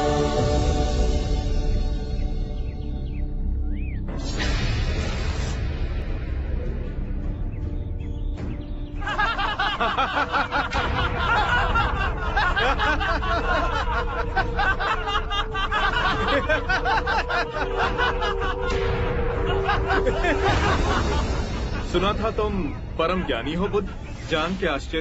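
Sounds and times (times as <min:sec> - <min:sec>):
men laughing: 0:09.0 - 0:24.2
background music with held note: 0:09.8 - 0:21.7.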